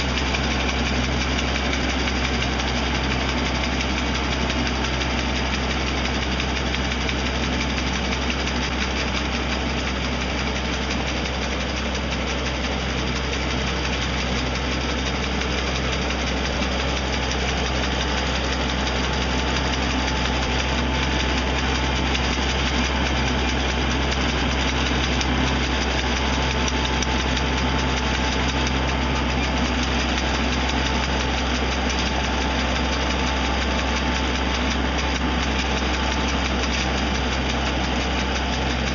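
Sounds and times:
brush cutter rattling: 0:00.0 - 0:38.9
tractor engine running: 0:00.0 - 0:38.9.

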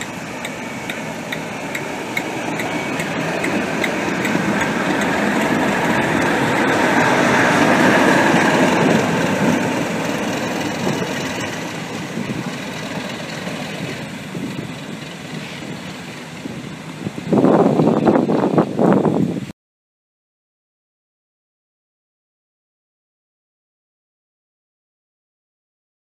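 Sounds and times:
diesel locomotive engine running: 0:00.0 - 0:19.5
loud choppy noise: 0:00.0 - 0:19.5.

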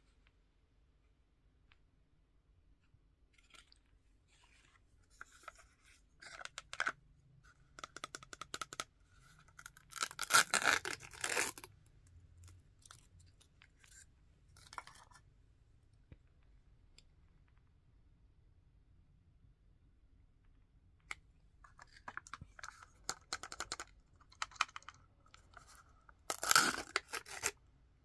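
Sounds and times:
paper wrapper crinkling: 0:09.6 - 0:11.7, 0:21.7 - 0:27.6
paper tearing: 0:26.3 - 0:27.6.

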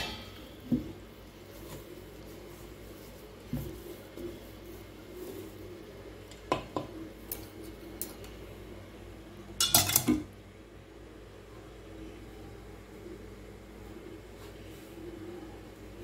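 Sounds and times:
metal utensils clinking on steel bowl: 0:09.6 - 0:10.2.

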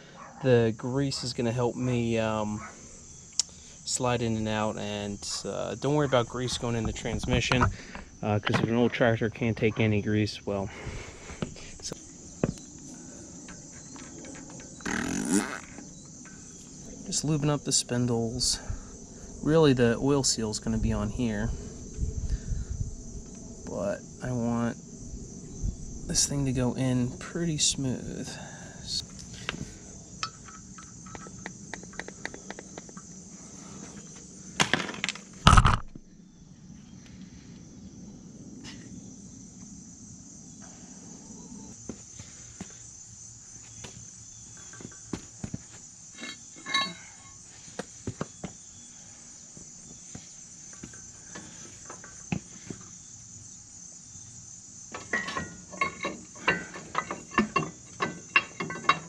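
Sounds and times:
insects chirring: 0:00.0 - 0:59.0
metallic knocks and clinks: 0:46.2 - 0:47.4, 0:54.9 - 0:59.0.

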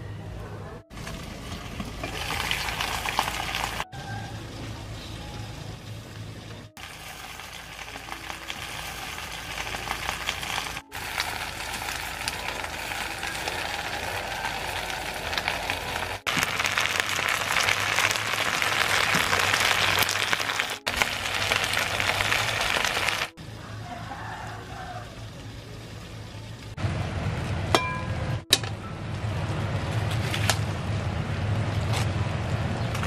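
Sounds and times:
juices sizzling in a pan: 0:01.0 - 0:23.3.

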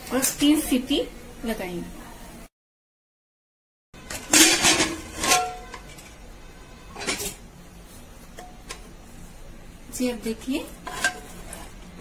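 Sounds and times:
metal utensil clanking on cookware: 0:04.1 - 0:06.2, 0:06.9 - 0:07.4, 0:10.8 - 0:11.8.

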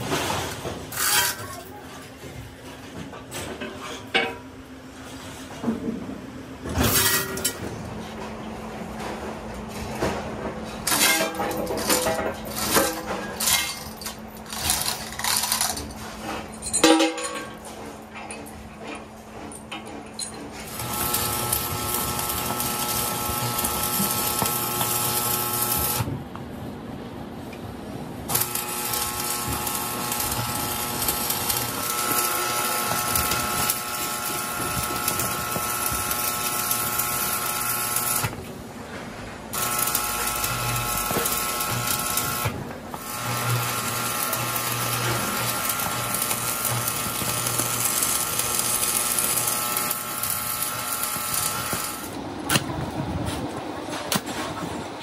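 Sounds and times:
welding arc crackling and buzzing: 0:10.8 - 0:16.4, 0:20.6 - 0:26.1, 0:28.2 - 0:38.6, 0:39.5 - 0:52.9.

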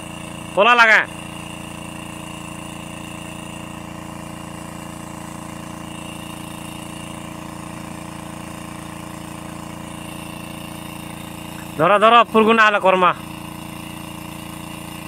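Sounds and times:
water pump humming with whine: 0:00.0 - 0:15.0.

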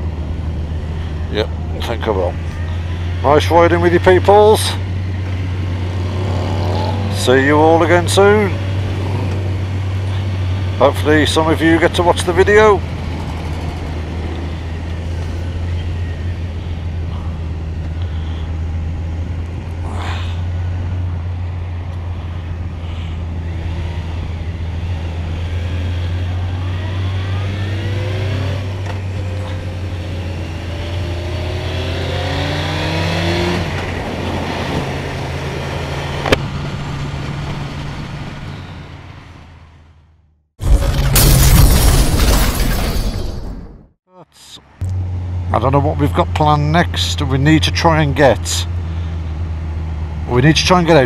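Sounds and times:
road noise: 0:00.0 - 0:51.0
motorcycle engine accelerating: 0:03.9 - 0:38.9.

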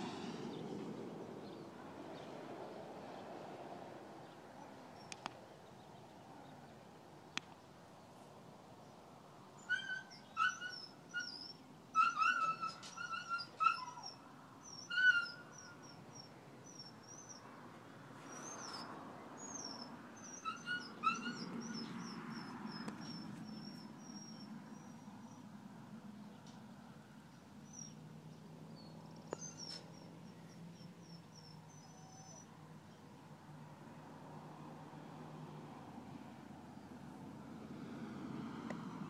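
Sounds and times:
small birds chirping: 0:09.6 - 0:17.5, 0:18.2 - 0:25.5, 0:27.3 - 0:33.1
dog whining and yelping: 0:09.7 - 0:17.4, 0:18.3 - 0:25.0, 0:29.4 - 0:30.1, 0:31.0 - 0:32.5.

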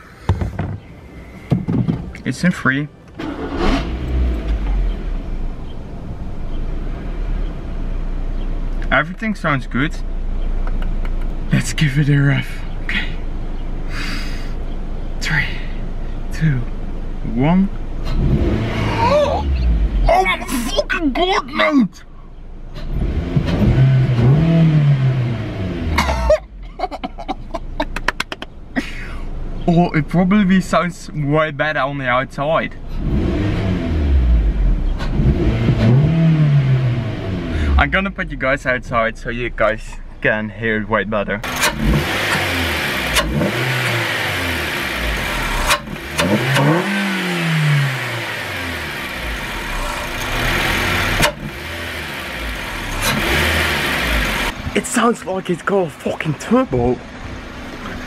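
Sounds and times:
car engine revving: 0:00.0 - 0:13.9, 0:16.0 - 0:21.4, 0:22.7 - 0:26.2, 0:32.8 - 0:38.8, 0:41.4 - 0:58.0
man laughing: 0:26.0 - 0:29.3.

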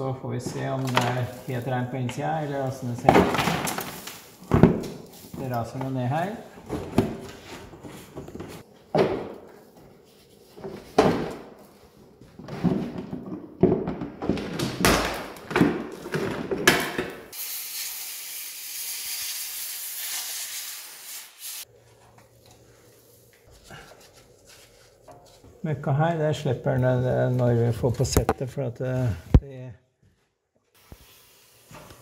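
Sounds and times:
steady hiss: 0:17.3 - 0:21.9, 0:30.8 - 0:32.0.

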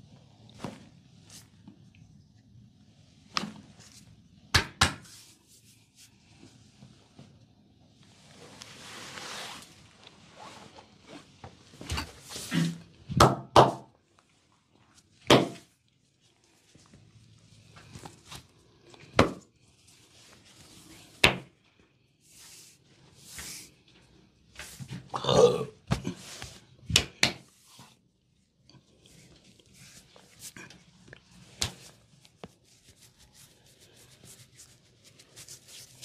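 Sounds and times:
palms rubbing over skin: 0:31.4 - 0:36.0.

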